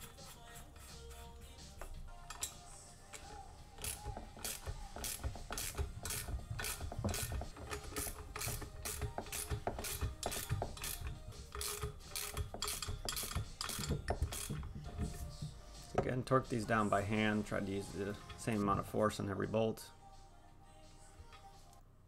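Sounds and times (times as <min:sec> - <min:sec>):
ratchet wrench clicking: 0:02.3 - 0:14.7.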